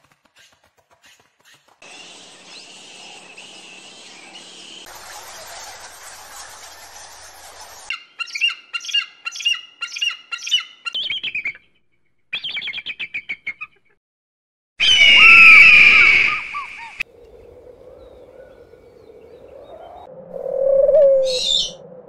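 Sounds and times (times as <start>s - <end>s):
eagle scream: 14.8s - 17.0s.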